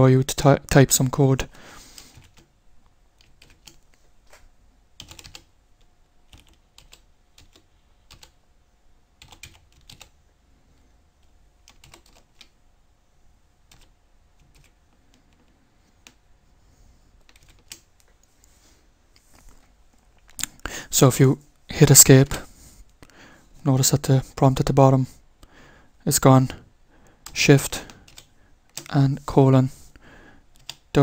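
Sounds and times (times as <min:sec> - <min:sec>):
keyboard typing: 0:02.0 - 0:02.5, 0:03.2 - 0:04.0, 0:05.0 - 0:05.5, 0:06.2 - 0:08.4, 0:09.2 - 0:10.2, 0:11.2 - 0:12.6, 0:13.6 - 0:16.2, 0:17.2 - 0:18.2, 0:27.2 - 0:29.0, 0:30.5 - 0:30.9.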